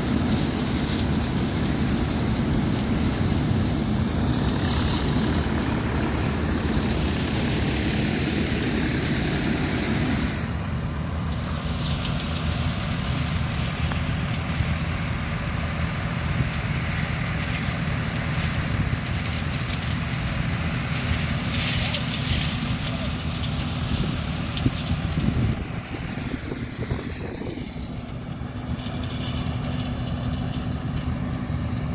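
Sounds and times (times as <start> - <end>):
auger pouring soybeans: 0.0 - 31.9
tractor engine droning: 0.0 - 31.9
wind noise on microphone: 23.8 - 28.8.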